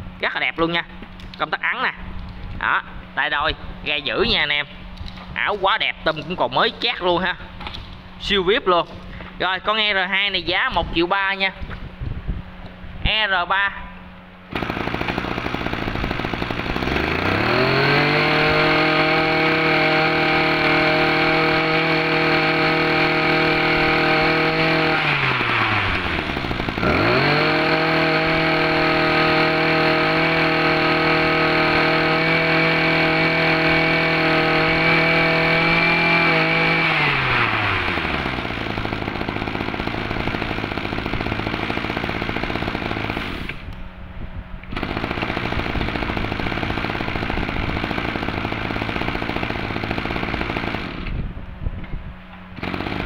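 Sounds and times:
brush cutter engine revving: 0:14.5 - 0:43.8, 0:44.7 - 0:51.3, 0:52.5 - 0:53.0.

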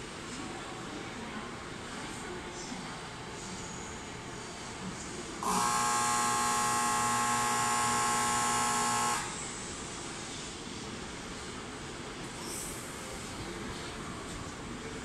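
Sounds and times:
platform departure buzzer: 0:05.4 - 0:09.4.

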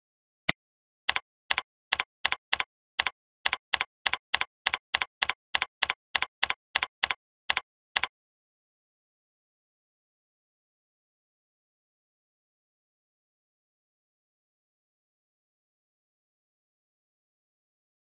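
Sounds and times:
computer keyboard typing: 0:01.1 - 0:08.1.

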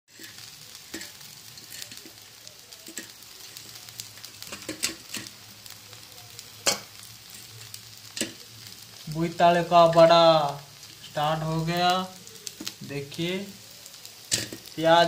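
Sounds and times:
oil crackling pops: 0:00.1 - 0:09.2, 0:12.0 - 0:13.1, 0:13.8 - 0:14.8
fritters sizzling in oil: 0:00.1 - 0:15.0.

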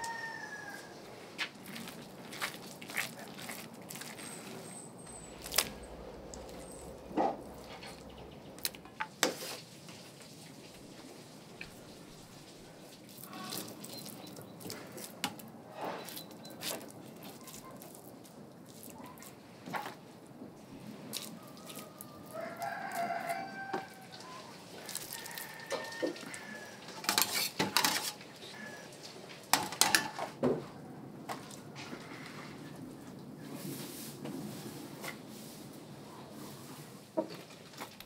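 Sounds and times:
rooster crowing: 0:00.0 - 0:01.1, 0:21.3 - 0:27.0.

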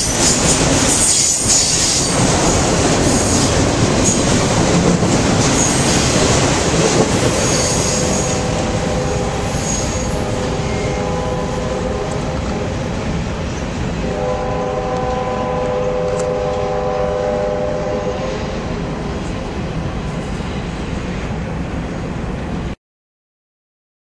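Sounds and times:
freight train wheels rumbling: 0:00.0 - 0:22.8
locomotive horn: 0:07.6 - 0:12.7, 0:14.0 - 0:18.6.

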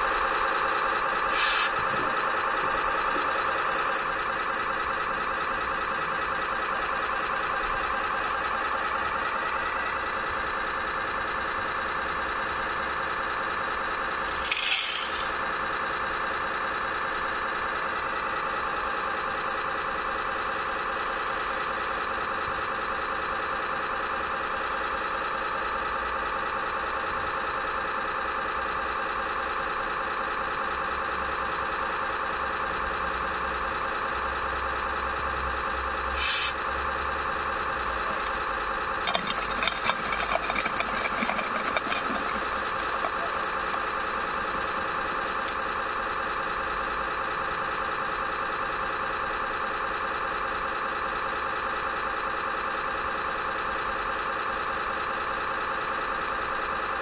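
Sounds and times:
hiss: 0:01.3 - 0:01.7, 0:36.2 - 0:36.6.

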